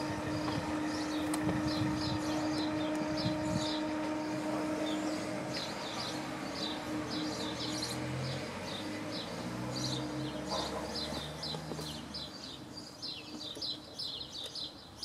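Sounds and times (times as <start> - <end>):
low hum: 0.0 - 9.2
small birds chirping: 0.0 - 15.0.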